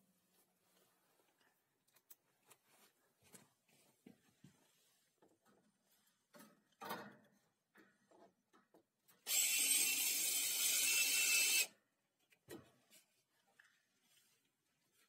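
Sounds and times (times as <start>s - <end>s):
cordless drill into wood: 9.3s - 11.7s.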